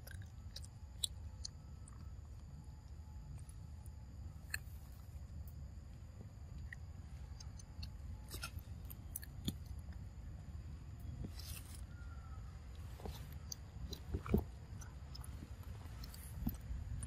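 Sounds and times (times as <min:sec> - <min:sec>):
monkey chewing and crunching food: 0:00.0 - 0:05.6, 0:11.0 - 0:17.0.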